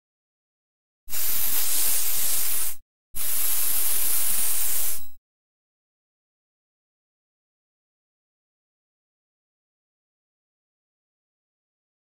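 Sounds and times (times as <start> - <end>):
high hissing bursts: 1.1 - 5.2.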